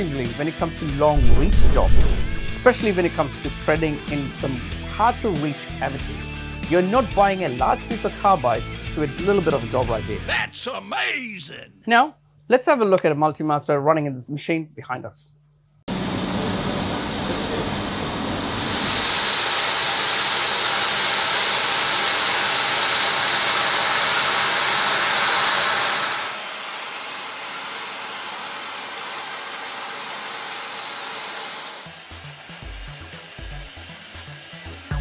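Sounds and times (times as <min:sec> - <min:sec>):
music with drum beat: 0:32.6 - 0:33.8.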